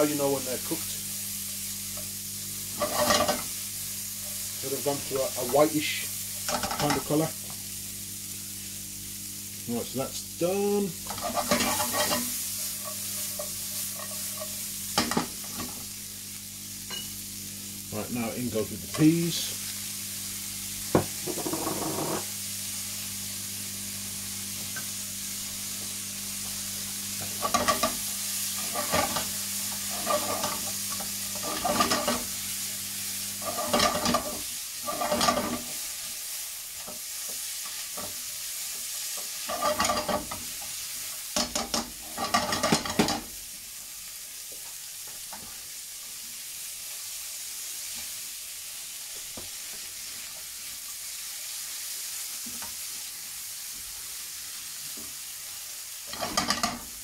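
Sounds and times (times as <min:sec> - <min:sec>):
food sizzling in a frying pan: 0:00.0 - 0:57.0
spatula scraping a pan: 0:02.7 - 0:03.6, 0:11.0 - 0:15.8, 0:27.2 - 0:28.0, 0:28.6 - 0:32.3, 0:33.4 - 0:36.1, 0:38.9 - 0:40.8, 0:41.4 - 0:43.3, 0:56.1 - 0:56.9.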